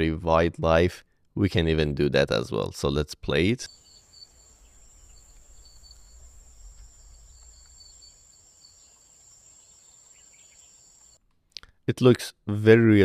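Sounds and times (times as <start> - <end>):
high insect buzz: 3.7 - 11.2
pulsing chirp: 3.7 - 11.2.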